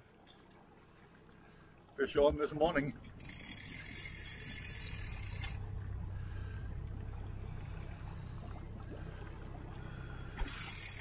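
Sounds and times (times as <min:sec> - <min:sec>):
outboard motor humming: 0:02.8 - 0:11.0.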